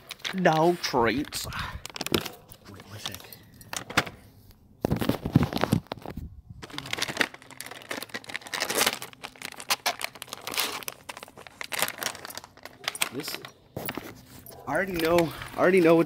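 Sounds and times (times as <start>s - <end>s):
plastic packaging crinkling: 0.0s - 4.0s, 4.8s - 16.0s.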